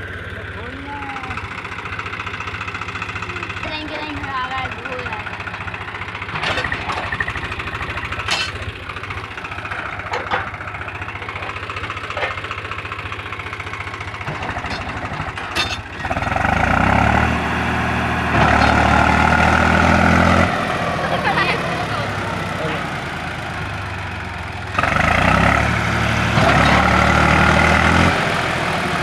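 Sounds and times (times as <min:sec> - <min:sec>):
tractor diesel engine chugging: 0:00.0 - 0:29.0
sharp metal clanks: 0:08.2 - 0:08.7, 0:14.3 - 0:16.1.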